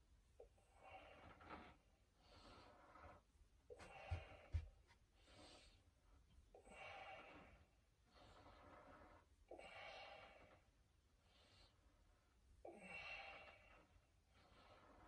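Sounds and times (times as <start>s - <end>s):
man breathing heavily: 3.7s - 5.8s
soft low thumps: 3.8s - 5.0s.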